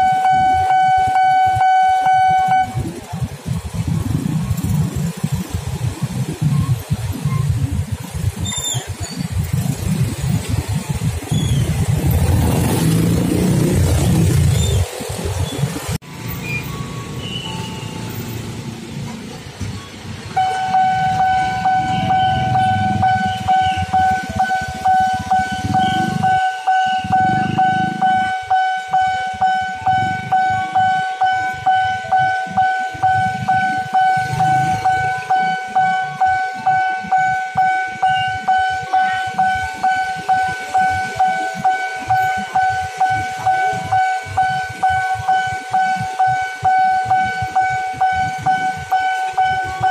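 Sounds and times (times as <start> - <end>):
level crossing warning bell: 0.0 - 3.8, 16.2 - 49.9
motorbike engines running: 0.0 - 49.9.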